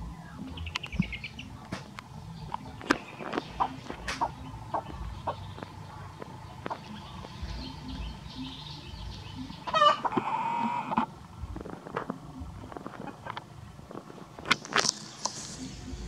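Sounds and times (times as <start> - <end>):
chicken calling: 0.0 - 13.4
faint chicken clucking: 0.0 - 13.6
small clicks: 10.9 - 15.8.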